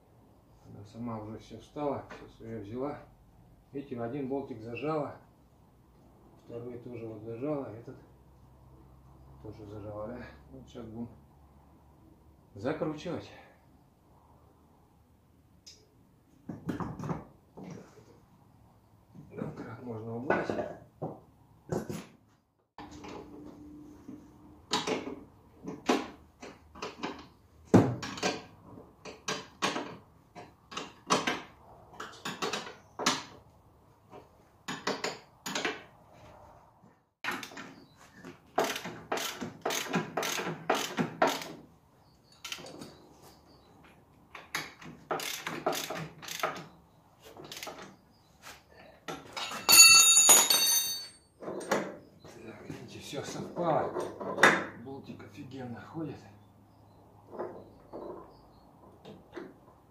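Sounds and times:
wrench clicking on bolts: 38.6s - 41.6s, 42.4s - 42.8s, 44.4s - 46.6s, 47.5s - 47.8s
ringing clink of metal on metal: 49.5s - 51.2s.

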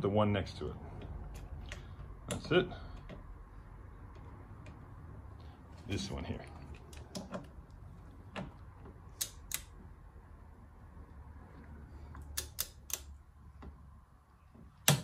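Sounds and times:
torque wrench clicking: 12.3s - 13.1s.

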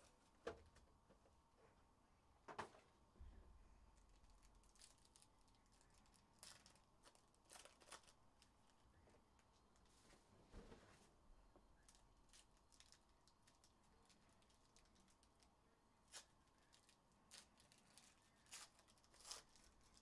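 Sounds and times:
foil wrappers crinkling: 4.0s - 8.8s, 11.8s - 20.0s.

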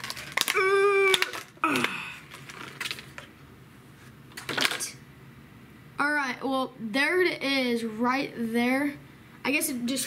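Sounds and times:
plastic package crinkling and clicking: 0.0s - 3.3s, 4.3s - 4.9s
plastic crackling: 0.0s - 3.4s, 4.3s - 5.0s.

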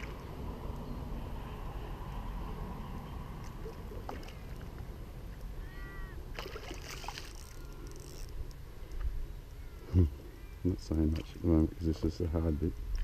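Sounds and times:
fish thrashing and splashing: 6.3s - 8.3s.

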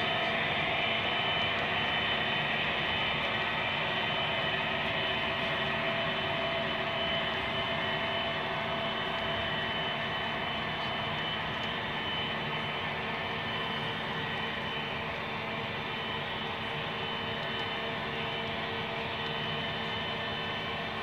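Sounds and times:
model train rolling on track: 0.0s - 21.0s.

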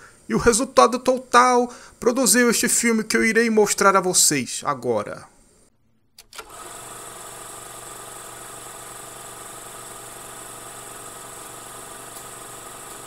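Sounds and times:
film projector whirring: 6.2s - 13.0s.

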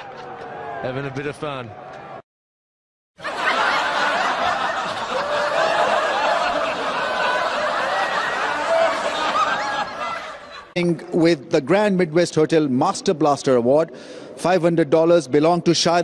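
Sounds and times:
crowd laughing: 3.2s - 10.8s.

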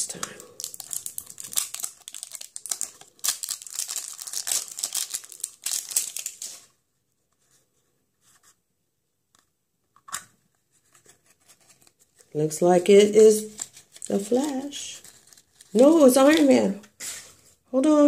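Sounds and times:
plastic wrap crinkling and tearing: 0.0s - 6.8s, 11.5s - 17.3s.

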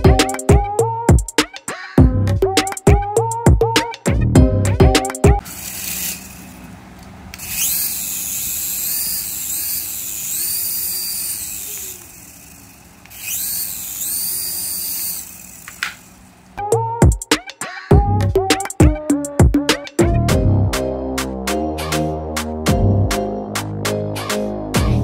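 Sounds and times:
high-pitched rotor motor whine: 5.4s - 16.3s.

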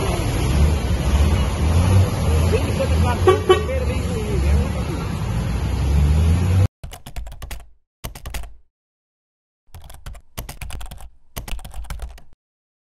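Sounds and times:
street traffic noise: 0.0s - 6.7s
keyboard typing clicks: 6.8s - 8.7s, 9.7s - 12.4s.

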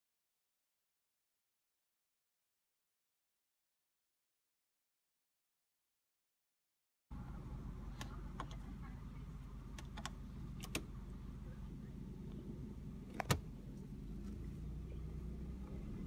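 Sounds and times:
car engine idling: 7.1s - 16.0s
light clicks and rattles: 9.7s - 11.0s.

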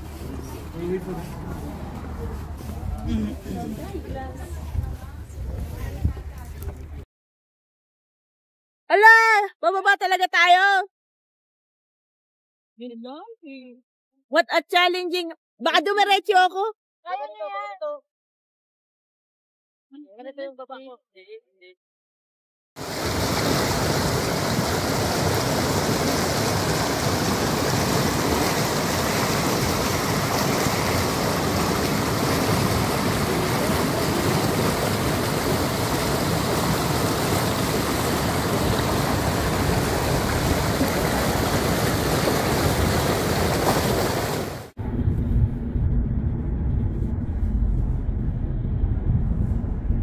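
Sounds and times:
buffeting rumble: 0.0s - 7.0s, 23.0s - 44.0s, 44.8s - 50.0s
air rushing over microphone: 22.8s - 50.0s.

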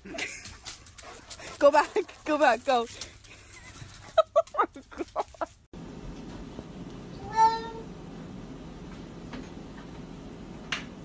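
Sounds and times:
cat meowing: 7.2s - 7.9s.

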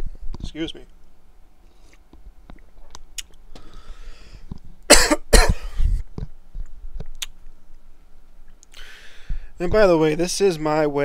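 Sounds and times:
breath in: 3.6s - 4.5s, 8.7s - 9.6s
man coughing: 4.9s - 5.8s.

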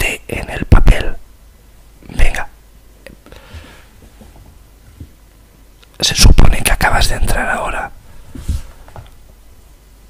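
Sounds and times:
short breathy hiss: 3.2s - 4.0s.

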